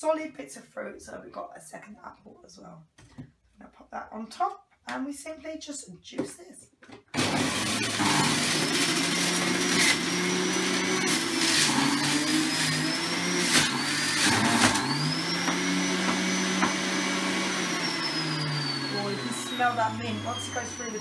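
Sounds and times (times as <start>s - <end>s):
juicer motor whining: 7.1s - 21.0s.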